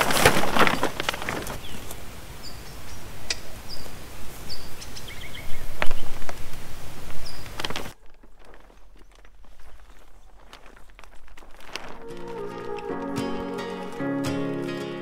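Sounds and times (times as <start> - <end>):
rustling and crackling: 0.0 - 15.0
small bird chirping: 2.4 - 6.2.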